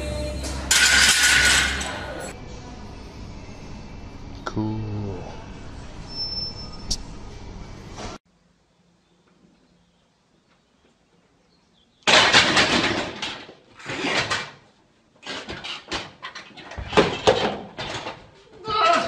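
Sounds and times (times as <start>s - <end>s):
weight plates crashing on floor: 0.7s - 2.0s, 12.1s - 13.5s.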